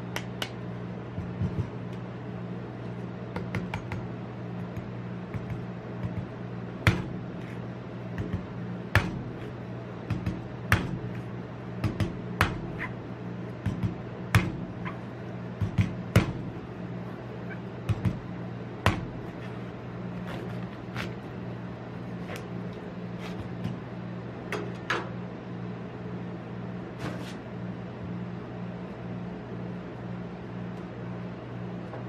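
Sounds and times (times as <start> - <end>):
steady low hum: 0.0 - 32.0
cleaver chopping coconut husk: 8.2 - 11.2.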